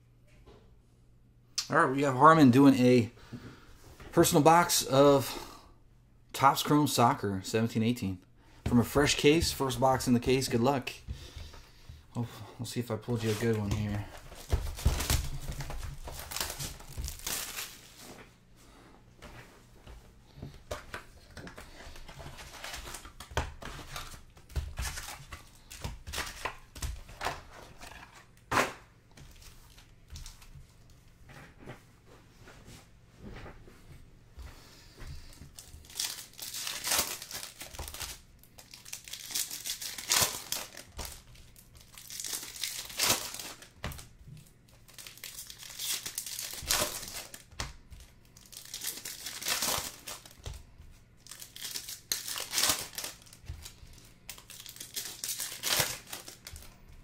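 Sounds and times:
foil wrappers crinkling: 0:13.1 - 0:18.2, 0:20.7 - 0:30.5, 0:35.2 - 0:57.0
cardboard rustling: 0:13.1 - 0:18.3
wrapper tearing: 0:13.2 - 0:18.0, 0:35.6 - 0:44.0, 0:44.8 - 0:50.6, 0:51.2 - 0:56.7.

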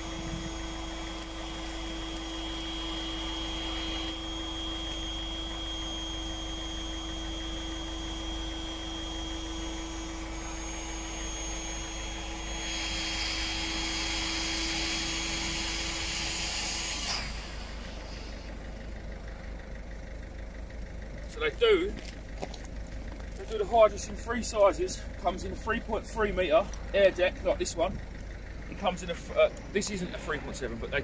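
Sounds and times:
electric air pump whining: 0:00.0 - 0:18.9.

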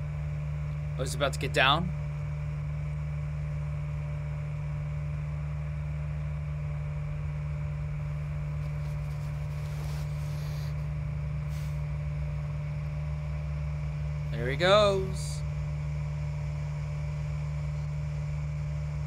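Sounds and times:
engine low drone: 0:00.0 - 0:19.0
faint hissing: 0:08.7 - 0:11.8.

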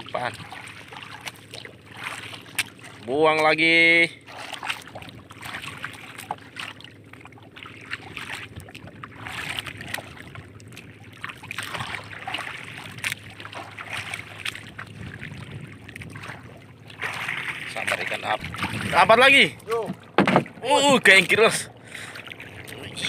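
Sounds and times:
water lapping against boat hull: 0:00.0 - 0:23.0
wind on microphone: 0:14.9 - 0:16.3, 0:18.4 - 0:19.2
knocks and clicks of gear: 0:19.6 - 0:20.6.

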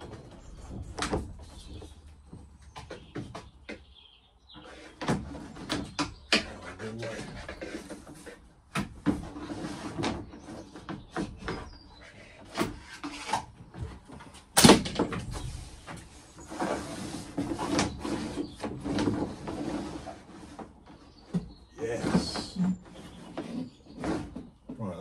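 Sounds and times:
cable scraping and rustling: 0:04.5 - 0:14.5, 0:15.2 - 0:24.9.

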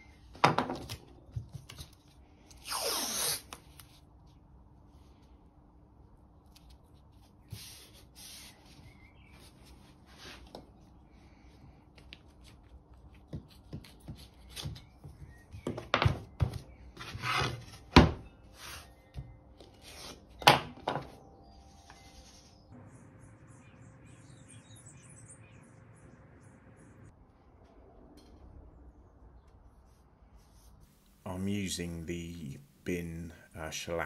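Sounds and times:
masking tape ripping: 0:02.6 - 0:03.8
tape rubbed down by hand: 0:02.6 - 0:04.0.

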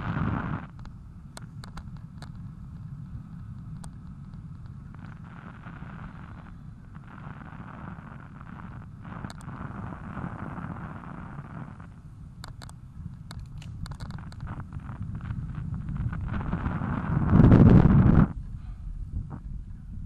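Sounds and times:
wind buffeting microphone: 0:00.0 - 0:20.0
faint clicks: 0:00.7 - 0:07.1, 0:08.2 - 0:09.6, 0:11.8 - 0:15.3.

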